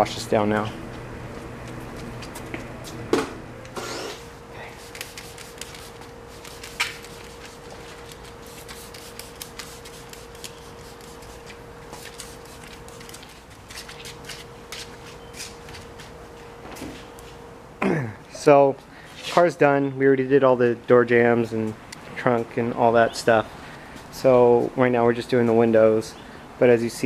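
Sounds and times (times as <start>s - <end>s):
faint steady hum: 0.0s - 27.0s
towels wiping wet car paint: 4.8s - 14.2s.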